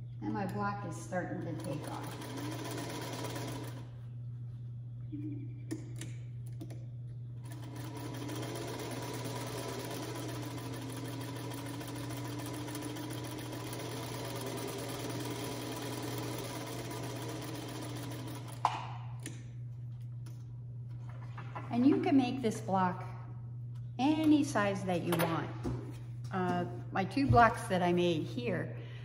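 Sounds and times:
sewing machine stitching: 1.4s - 3.8s, 7.4s - 18.6s.

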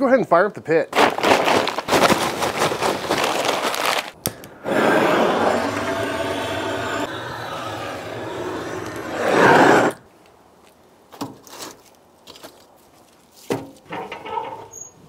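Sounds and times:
rustles: 1.0s - 4.2s, 10.0s - 14.7s
gas torch flame hissing: 4.5s - 10.0s.

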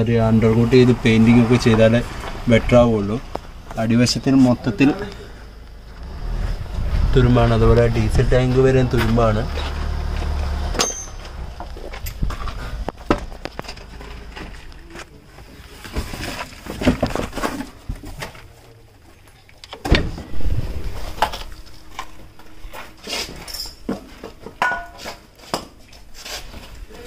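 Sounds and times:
knocks and clinks of tools: 10.7s - 13.9s, 21.1s - 25.2s.

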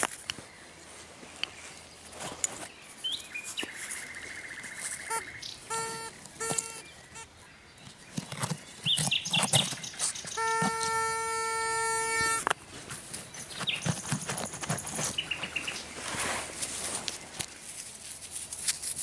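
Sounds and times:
earth being dug by hand: 1.5s - 19.0s
bird chirps: 2.7s - 12.4s, 13.2s - 14.0s, 15.1s - 16.0s
metal detector pinpointer buzzing: 4.9s - 7.3s, 8.2s - 12.6s.

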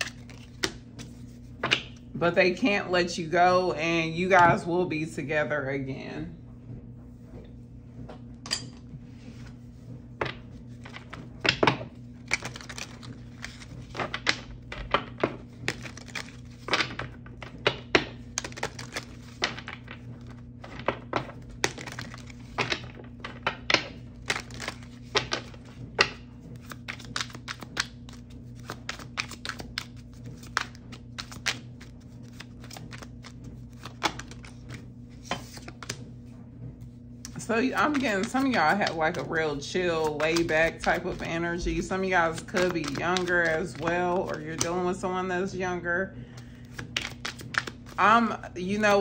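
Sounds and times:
cards clicking and tapping: 0.0s - 2.0s, 10.2s - 36.0s, 37.3s - 39.3s, 40.1s - 44.8s, 46.4s - 48.0s
steady low hum: 0.0s - 49.0s.

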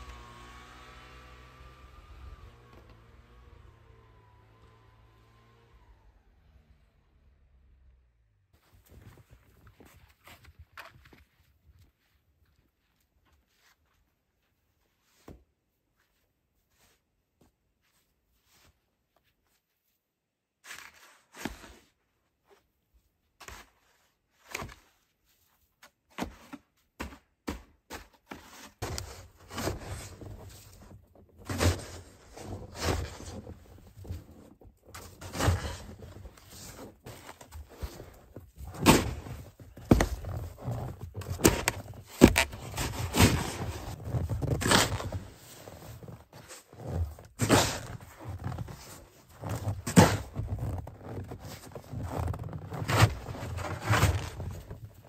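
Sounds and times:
snow shovel scraping: 28.3s - 55.0s.

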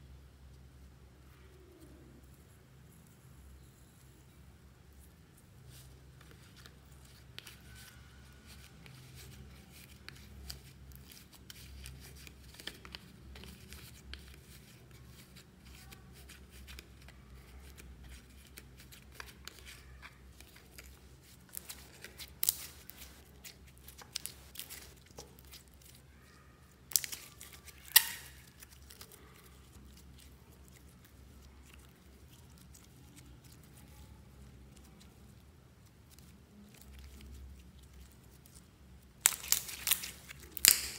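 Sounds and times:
hands squeezing sticky slime: 5.7s - 40.9s
sharp slime pops: 39.2s - 40.9s.

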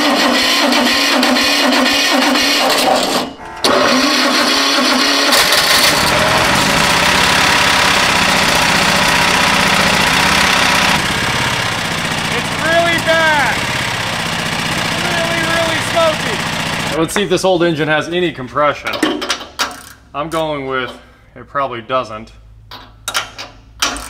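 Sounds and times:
electric starter cranking engine: 0.0s - 17.0s
engine running with even beat: 3.4s - 17.3s.

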